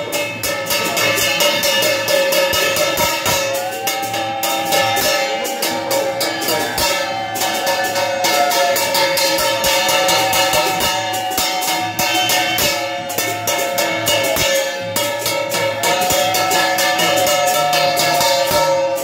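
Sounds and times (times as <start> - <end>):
fast drumming and percussion: 0.0 - 19.0
sustained melody line: 0.0 - 19.0.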